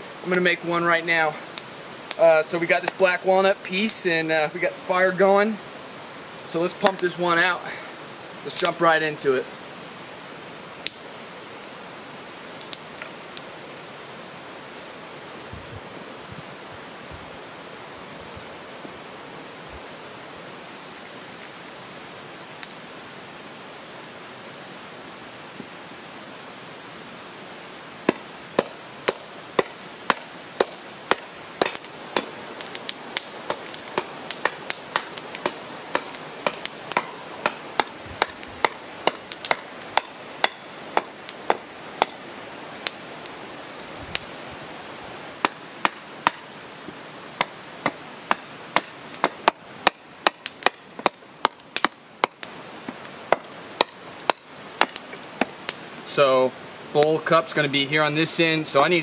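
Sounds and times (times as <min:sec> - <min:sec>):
background hiss: 0:00.0 - 0:59.0
hatchet chopping wood: 0:28.1 - 0:42.2, 0:45.4 - 0:46.5, 0:47.4 - 0:55.5.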